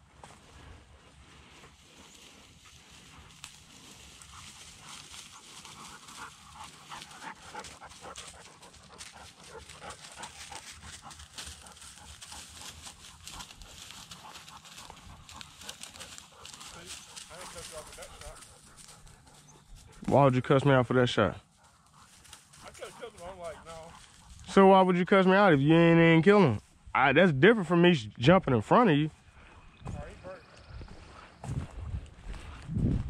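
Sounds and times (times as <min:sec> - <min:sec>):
brush crackling and rustling: 0:00.0 - 0:20.2, 0:21.6 - 0:24.8
dog panting: 0:00.3 - 0:20.1, 0:21.2 - 0:24.5.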